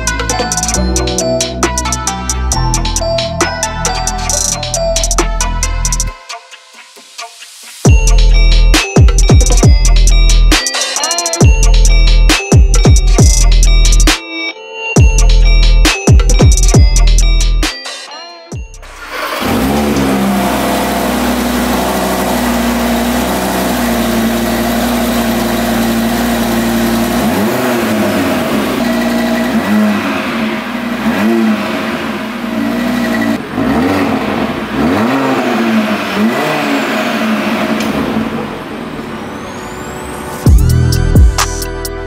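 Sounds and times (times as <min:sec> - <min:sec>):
car exhaust idling and revving: 0:18.8 - 0:39.4.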